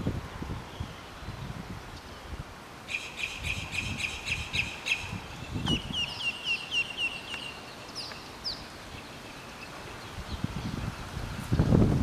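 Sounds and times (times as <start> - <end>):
bird calling with sharp high notes: 2.9 - 10.1.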